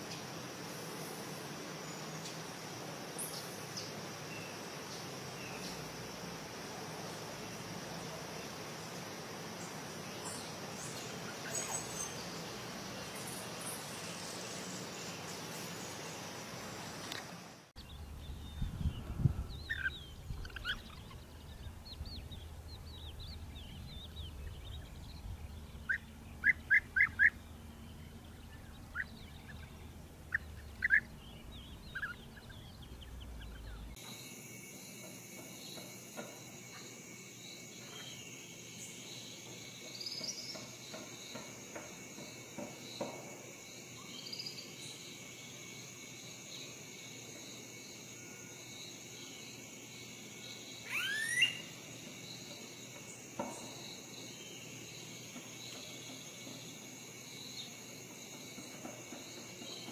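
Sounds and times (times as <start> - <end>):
high insect buzz: 0.0 - 59.9
birds chirping: 17.8 - 34.0, 50.8 - 51.8.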